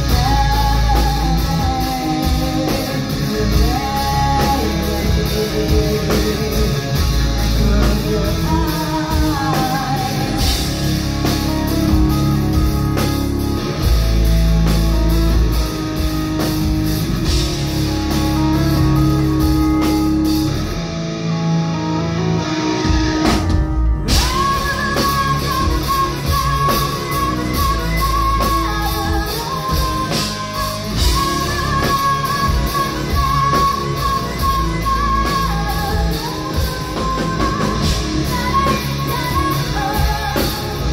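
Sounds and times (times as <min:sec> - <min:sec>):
female lead vocals: 0:00.0 - 0:13.0, 0:24.1 - 0:40.9
bass guitar: 0:00.0 - 0:40.9
drum kit: 0:00.0 - 0:40.9
electric guitar: 0:00.0 - 0:40.9.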